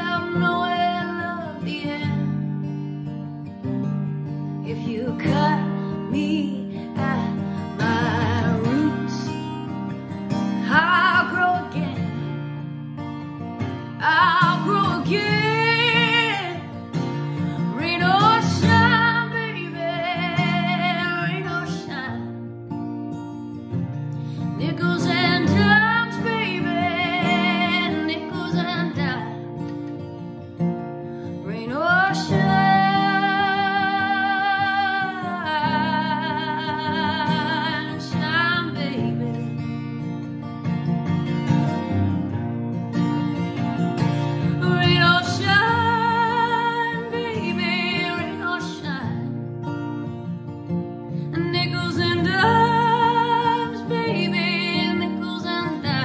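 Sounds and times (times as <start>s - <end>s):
woman singing with vibrato: 0.0s - 2.4s, 4.7s - 9.5s, 10.6s - 12.2s, 14.0s - 16.8s, 17.4s - 22.3s, 24.6s - 29.5s, 31.4s - 39.6s, 44.4s - 49.4s, 51.3s - 56.0s
acoustic guitar: 0.0s - 56.0s.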